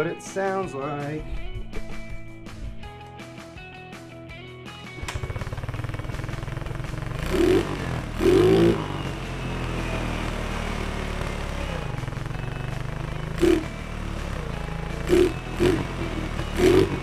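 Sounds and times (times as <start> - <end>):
scooter engine idling: 5.0 - 17.0
scooter throttle blips: 5.0 - 17.0.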